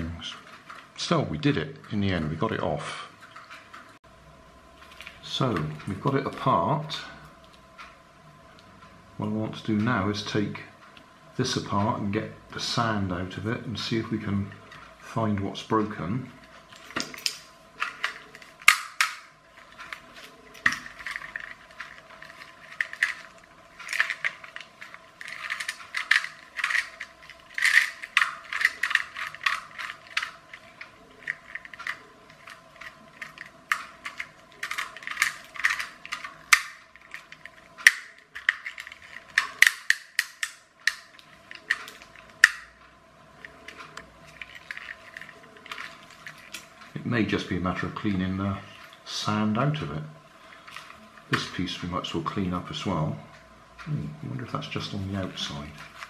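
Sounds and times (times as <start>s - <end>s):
plastic parts clicking and rattling: 0.0s - 1.1s, 4.8s - 6.7s, 12.8s - 48.1s, 50.4s - 52.8s, 53.8s - 56.0s.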